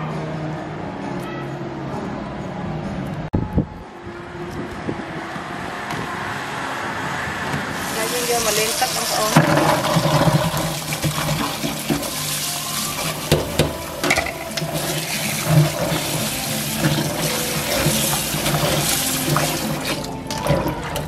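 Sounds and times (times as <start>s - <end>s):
tap water running into bowl: 8.2s - 21.0s.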